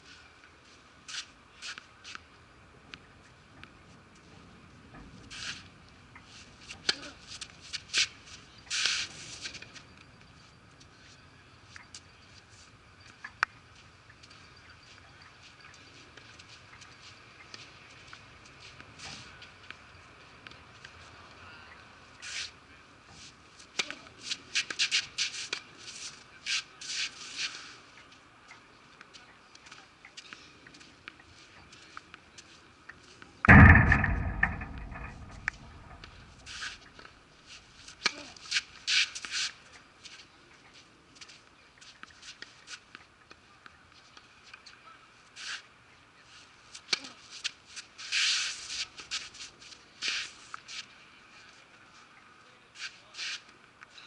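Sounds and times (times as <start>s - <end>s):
racket hitting ball: 33.5s - 36.4s
sharp click: 33.5s - 36.7s.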